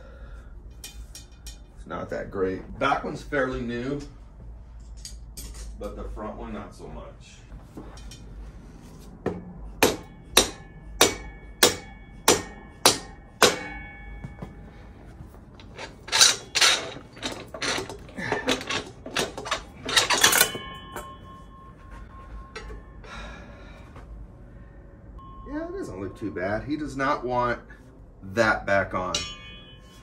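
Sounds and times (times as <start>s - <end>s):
hammer striking steel axle: 9.0s - 23.4s, 29.0s - 30.0s
metal clatter: 9.2s - 23.1s.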